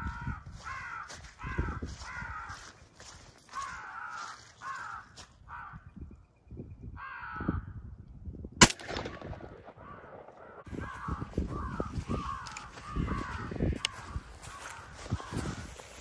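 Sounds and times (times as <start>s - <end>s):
crows cawing: 0.0s - 6.0s, 7.0s - 7.8s, 9.1s - 16.0s
loud shotgun shot: 8.6s - 10.6s.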